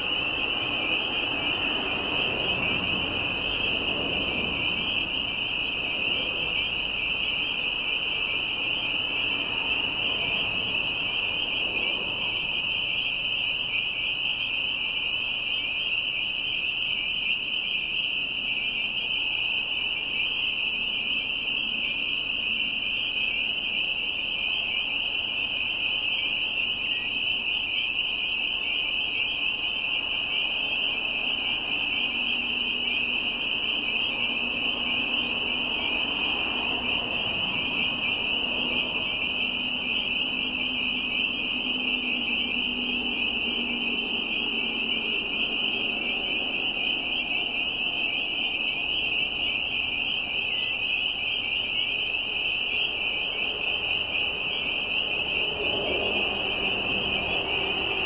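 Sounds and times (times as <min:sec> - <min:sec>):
chorus of peeping frogs: 0:00.0 - 0:58.0.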